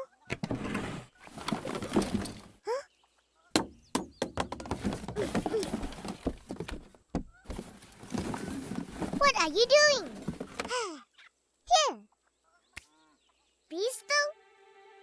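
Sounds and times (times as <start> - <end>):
objects clattering in drawer: 0.4 - 2.6, 7.5 - 10.7.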